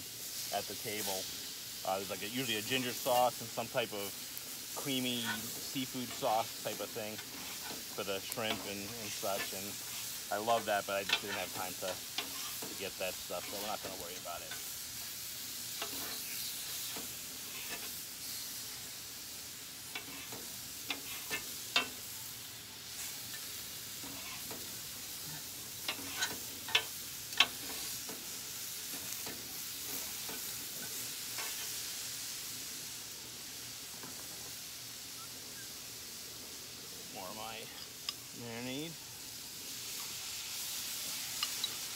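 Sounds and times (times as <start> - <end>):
meat sizzling on a griddle: 0.0 - 41.9
metal spatula scraping a griddle: 4.7 - 14.8, 15.4 - 18.6, 19.9 - 22.1, 22.8 - 31.9.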